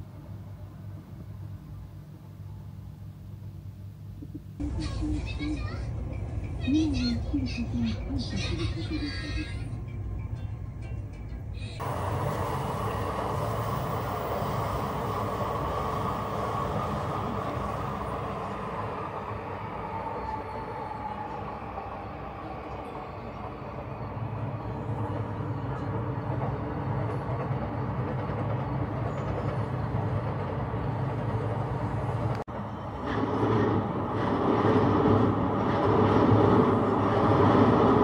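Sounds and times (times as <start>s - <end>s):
electric trains rumbling: 0.0s - 38.0s.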